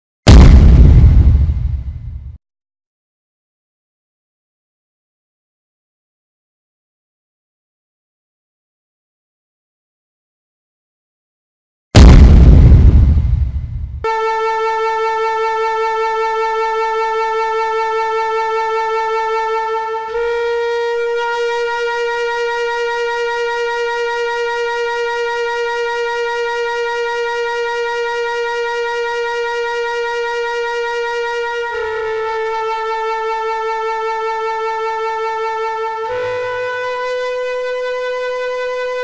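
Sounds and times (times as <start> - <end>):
dramatic music hit: 0.3 - 2.4, 12.0 - 15.1
long reedy held note: 14.1 - 39.0.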